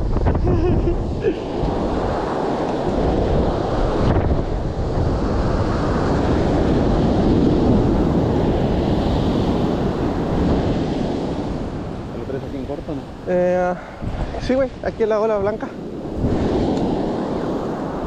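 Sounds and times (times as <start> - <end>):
ocean surf washing in: 0.0 - 18.0
wind rumbling on microphone: 0.0 - 18.0.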